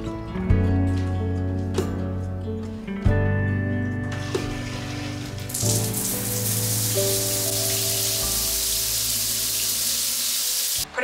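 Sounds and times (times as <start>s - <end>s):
background music: 0.0s - 11.0s
shower water hissing: 4.2s - 10.9s.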